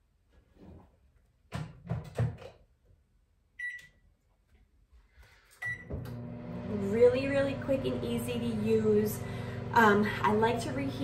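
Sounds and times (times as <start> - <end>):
microwave keypad beeps: 3.6 - 3.9, 5.6 - 5.9.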